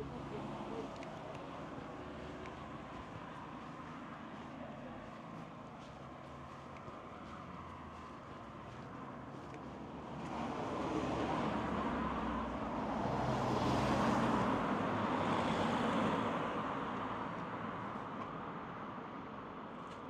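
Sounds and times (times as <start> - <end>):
vehicle passing by: 10.1 - 17.0.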